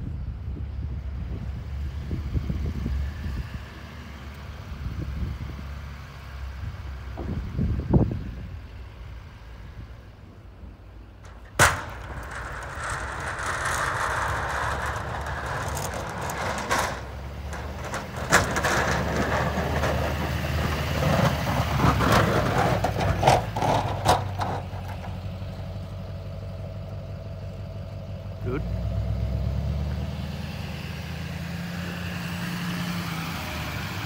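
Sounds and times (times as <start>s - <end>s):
truck engine running: 4.0s - 29.1s
sharp bang: 11.3s - 17.2s
scattered knocks: 11.3s - 20.2s
plow blade scraping snow: 11.3s - 26.0s, 28.7s - 34.0s.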